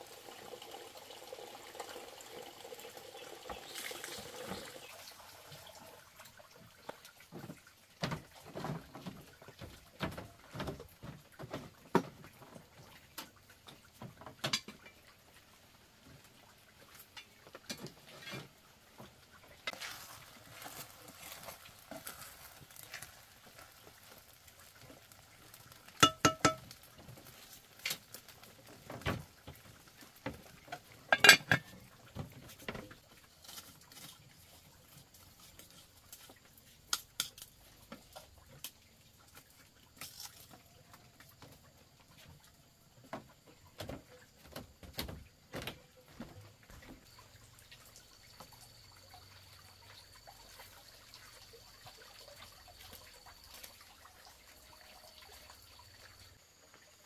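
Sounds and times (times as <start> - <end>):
objects knocking and clinking: 26.0 - 26.7, 31.1 - 31.7.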